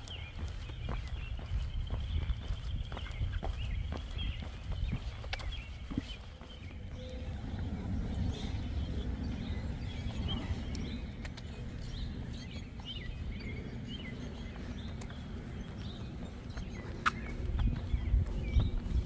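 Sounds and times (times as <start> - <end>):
bird chirps: 0.0 - 19.0
low rumble: 5.6 - 19.0.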